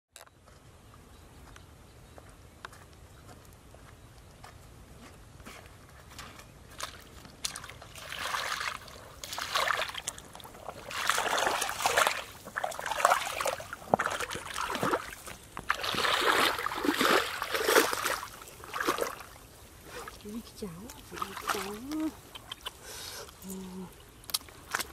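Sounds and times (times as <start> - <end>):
feet wading through muddy water: 6.1 - 24.9.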